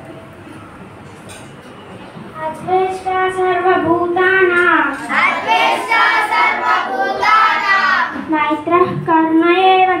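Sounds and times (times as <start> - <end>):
children chanting a verse: 4.9 - 8.3.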